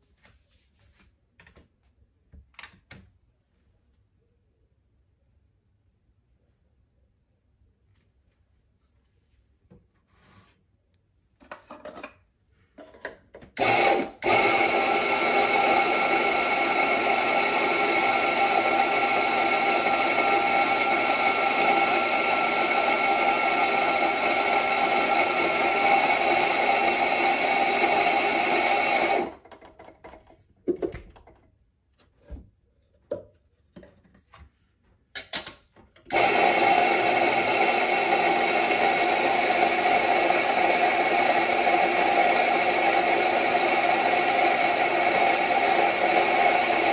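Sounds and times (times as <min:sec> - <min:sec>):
coffee grinder whirring: 0:13.6 - 0:29.6, 0:36.1 - 0:46.9.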